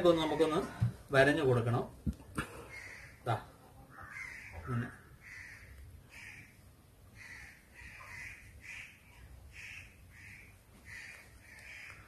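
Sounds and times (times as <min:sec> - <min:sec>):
crow cawing: 0:02.4 - 0:12.0.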